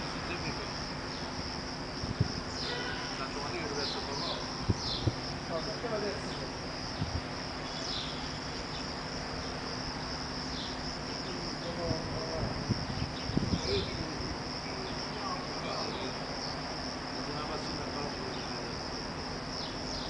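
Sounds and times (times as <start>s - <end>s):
crickets chirring: 0.0s - 20.0s.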